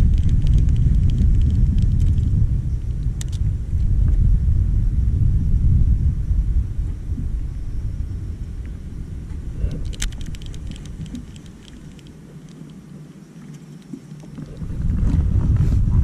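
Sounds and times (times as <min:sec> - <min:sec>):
sharp clicks and ticks: 0:00.0 - 0:02.4, 0:03.0 - 0:03.4, 0:09.8 - 0:12.8
wind buffeting microphone: 0:00.0 - 0:16.0.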